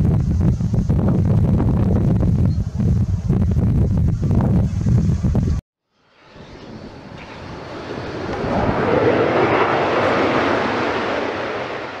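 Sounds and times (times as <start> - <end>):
jet aircraft flyby: 0.0 - 12.0.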